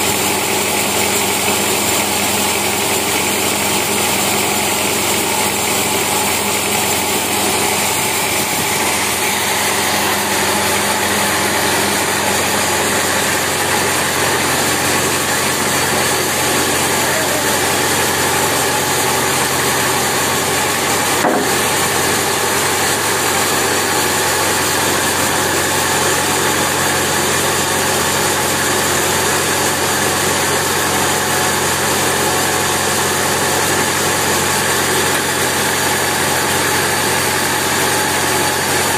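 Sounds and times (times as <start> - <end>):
sawmill machinery running: 0.0 - 38.9
sharp knock: 21.2 - 21.6.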